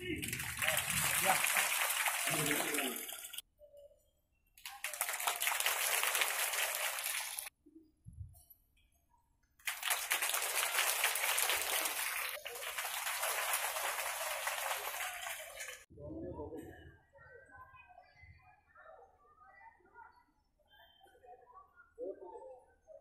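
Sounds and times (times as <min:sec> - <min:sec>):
crowd clapping: 0:00.0 - 0:03.4, 0:04.6 - 0:07.5, 0:09.6 - 0:15.9.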